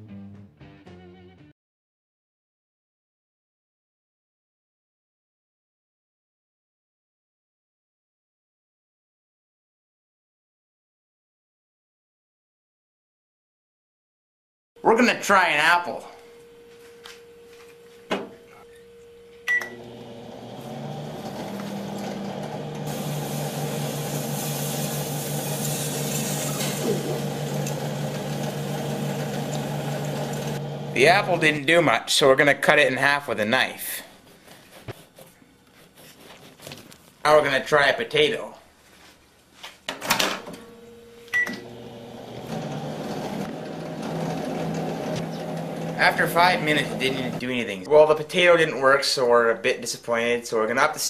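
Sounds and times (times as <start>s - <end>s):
microwave running hum: 14.8s - 31.9s, 40.2s - 47.5s.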